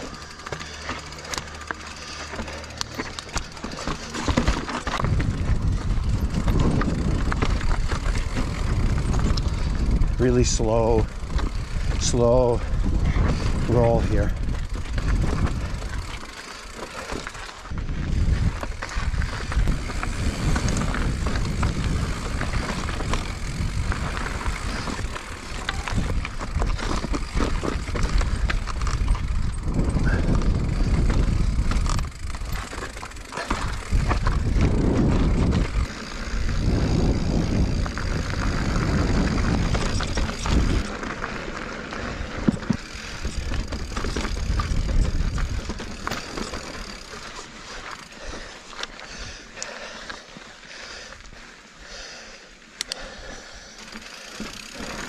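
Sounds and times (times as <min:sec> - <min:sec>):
bike knocks and rattles: 0:00.0 - 0:48.8, 0:53.8 - 0:55.0
tyre crunch on dirt: 0:00.1 - 0:10.1, 0:11.0 - 0:49.1
wind rushing on microphone: 0:04.9 - 0:16.2, 0:17.6 - 0:32.6, 0:33.5 - 0:40.9, 0:42.4 - 0:46.1.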